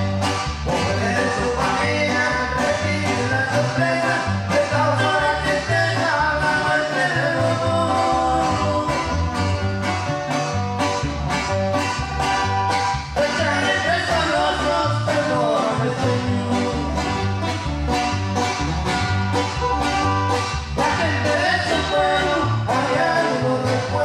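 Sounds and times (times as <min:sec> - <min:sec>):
acoustic guitar strumming: 0:00.0 - 0:24.0
bass line: 0:00.0 - 0:24.0
person singing: 0:00.7 - 0:09.3, 0:13.2 - 0:17.4, 0:20.7 - 0:24.0.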